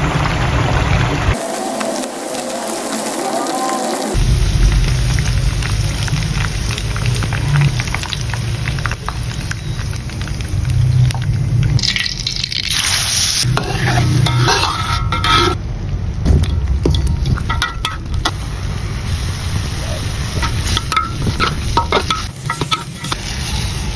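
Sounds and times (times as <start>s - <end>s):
oil sizzling in a wok: 0.0s - 15.7s, 16.5s - 23.9s
metal utensils clinking and scraping: 13.4s - 15.6s, 16.9s - 18.4s, 20.3s - 23.9s.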